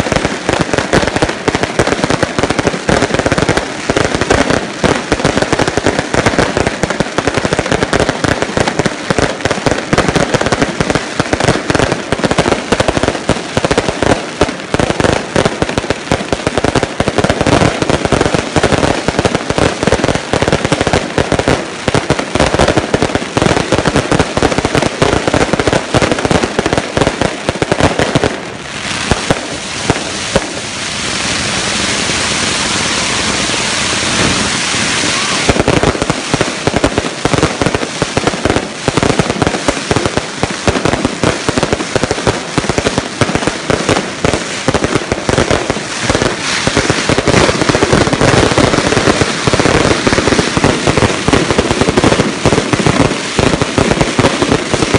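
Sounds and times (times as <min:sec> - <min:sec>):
fireworks bangs and crackles: 0:00.0 - 0:54.9
steady hissing rush: 0:28.6 - 0:36.8.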